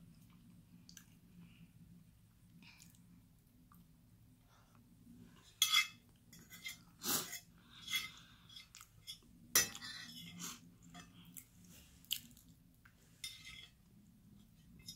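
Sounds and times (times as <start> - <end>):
breathing: 7.6 - 8.7
chewing: 11.3 - 12.6.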